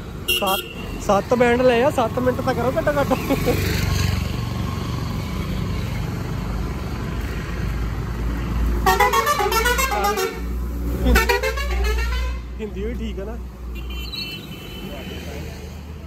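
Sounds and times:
hum of passing vehicles: 0:00.0 - 0:16.0
car horns honking: 0:00.2 - 0:01.0, 0:08.8 - 0:12.6, 0:13.8 - 0:15.2.

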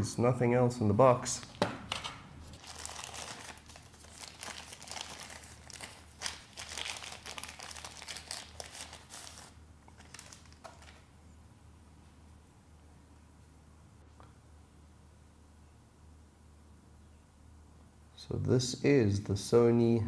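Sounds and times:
plastic wrapping crinkling: 0:01.4 - 0:11.1.

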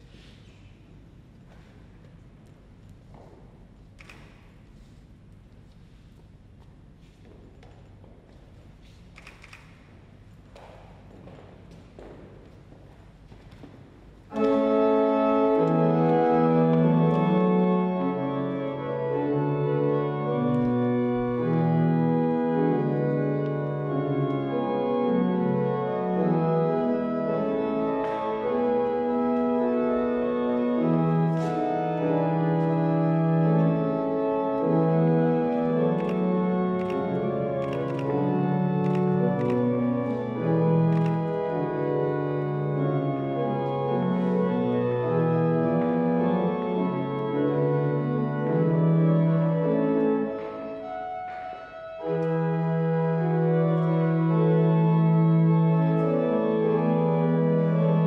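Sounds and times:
organ playing chords: 0:14.3 - 0:58.0.

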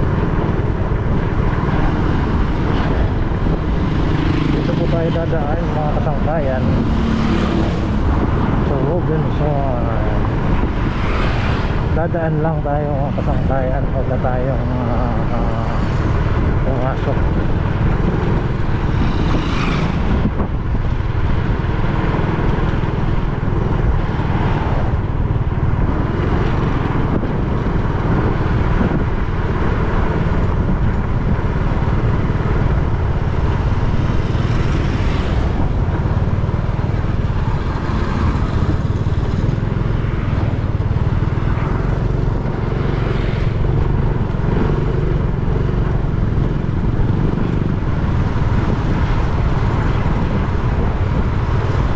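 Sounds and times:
motorcycle engine cruising: 0:00.0 - 0:51.9
road rumble: 0:00.0 - 0:51.9
wind on microphone: 0:00.0 - 0:51.9.

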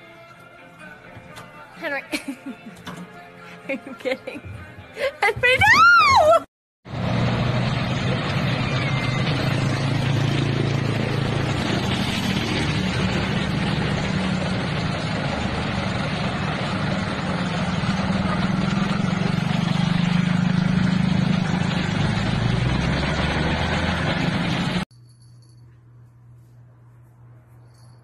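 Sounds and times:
vehicle engines running: 0:06.9 - 0:24.8.

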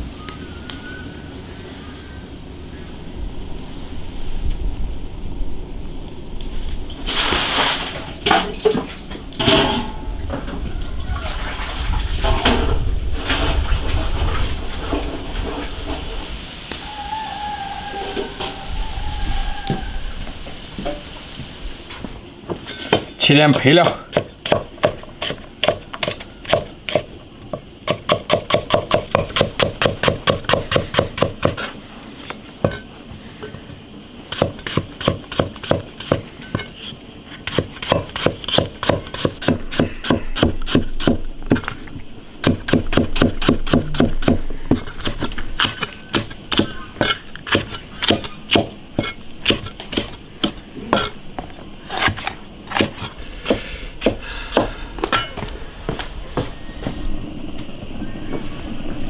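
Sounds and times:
cleaver chopping on wooden block: 0:23.0 - 0:27.1, 0:27.8 - 0:31.7, 0:42.4 - 0:51.1, 0:51.9 - 0:54.7.

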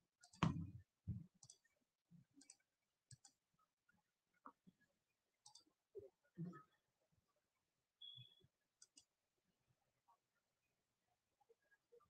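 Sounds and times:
faint irregular clicks: 0:01.4 - 0:03.5, 0:05.4 - 0:05.8, 0:08.8 - 0:09.2.

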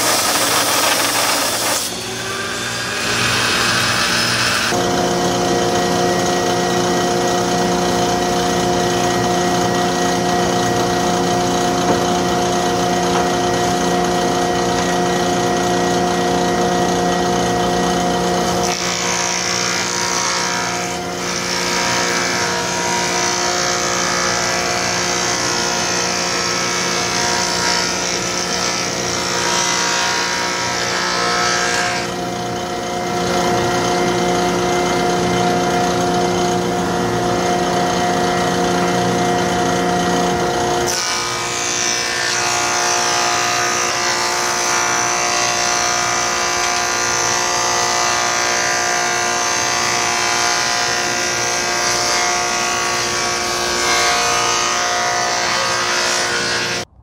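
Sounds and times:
high-pitched hiss of planing: 0:00.0 - 0:04.8
planer motor hum: 0:00.0 - 0:56.9.

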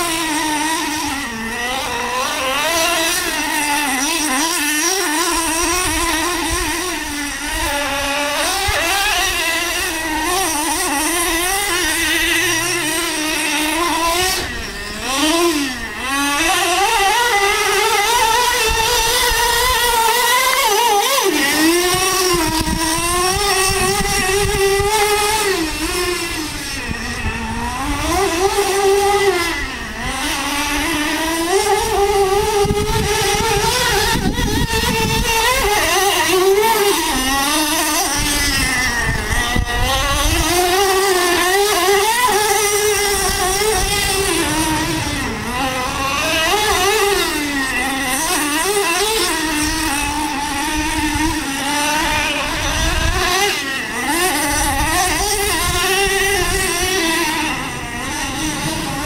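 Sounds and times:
nitro engine buzzing: 0:00.0 - 0:59.0.

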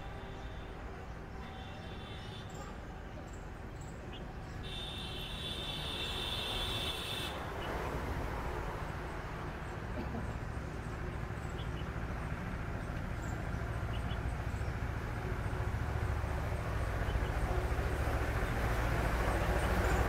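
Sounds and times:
train approaching rumble: 0:07.4 - 0:20.0.

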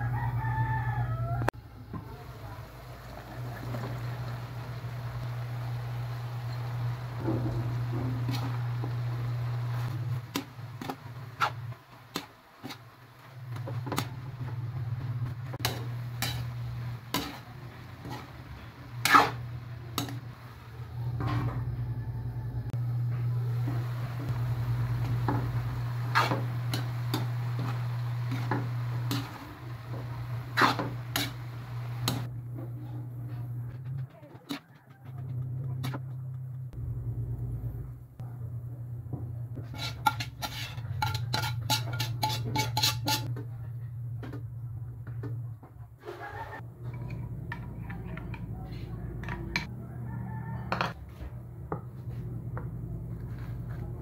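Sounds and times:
metal spatula scraping a wok: 0:06.4 - 0:20.6, 0:24.3 - 0:32.3, 0:39.6 - 0:43.3
low hum: 0:13.3 - 0:34.2, 0:35.0 - 0:39.6.

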